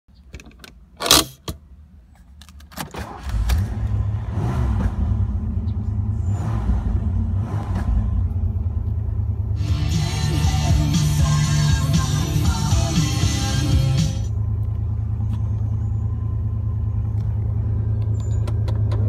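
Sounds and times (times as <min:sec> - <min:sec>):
car engine starting and rumbling: 0:00.1 - 0:19.0
parking brake handle clatter: 0:00.2 - 0:01.6, 0:17.9 - 0:19.0.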